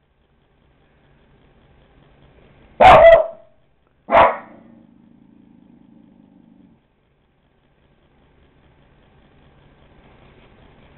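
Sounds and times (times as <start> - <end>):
faint low hum: 0.0 - 10.9
dog barking: 2.8 - 3.5, 4.1 - 4.7.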